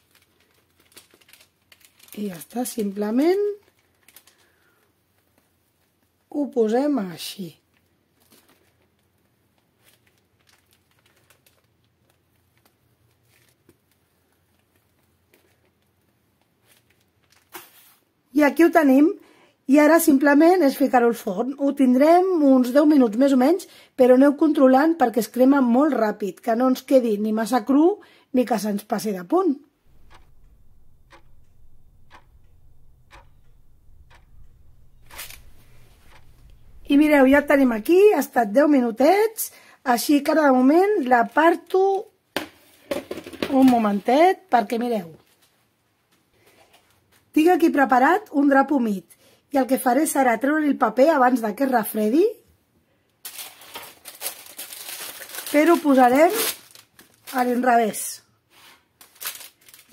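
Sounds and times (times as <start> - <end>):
plastic piping bag crinkling: 0.0 - 6.1, 7.7 - 18.0, 53.2 - 57.7, 58.9 - 59.9
clock ticking: 29.9 - 38.0
faint low hum: 29.9 - 38.1.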